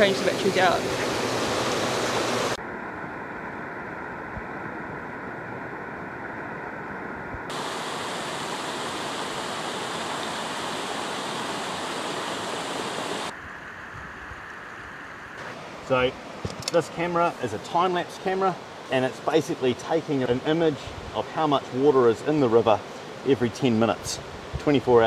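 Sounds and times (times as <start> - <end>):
river water rushing: 0.0 - 2.6, 7.5 - 13.4, 15.4 - 25.0.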